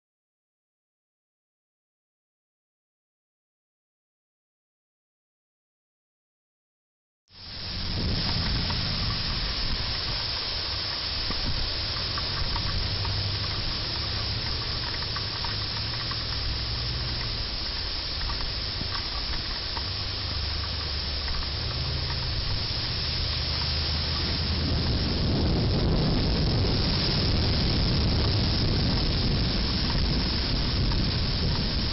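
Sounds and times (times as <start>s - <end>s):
heavy rain pouring: 7.4s - 31.9s
low thunder rumble: 7.4s - 31.9s.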